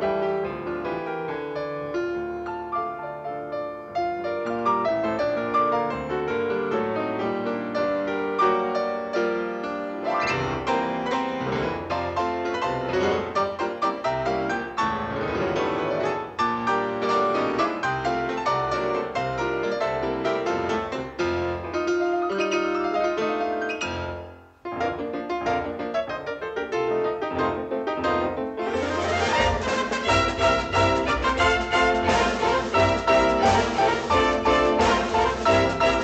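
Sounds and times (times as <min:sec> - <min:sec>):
fast piano piece: 0:00.0 - 0:36.0.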